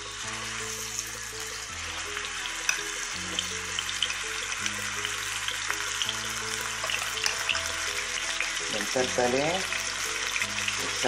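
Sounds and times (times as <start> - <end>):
chicken sizzling in hot oil: 0.0 - 11.0
soft background music: 0.0 - 11.0.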